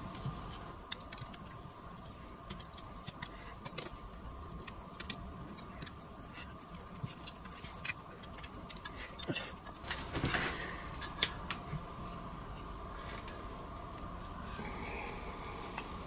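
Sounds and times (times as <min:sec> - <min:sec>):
faint steady hum: 0:00.0 - 0:16.0
small parts being handled: 0:00.1 - 0:11.8.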